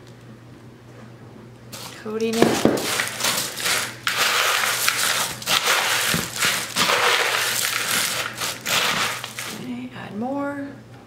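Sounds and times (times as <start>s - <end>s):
cereal crunching in plastic bowl: 1.8s - 9.7s.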